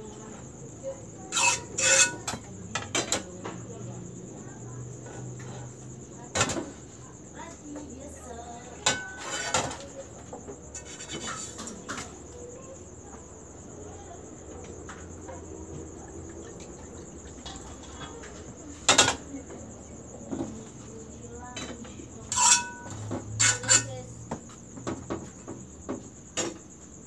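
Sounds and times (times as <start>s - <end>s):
crickets chirping: 0.0s - 27.0s
metal pans clanking on stove: 1.3s - 3.3s, 8.8s - 9.9s, 10.7s - 12.2s, 18.9s - 19.2s, 22.3s - 24.1s.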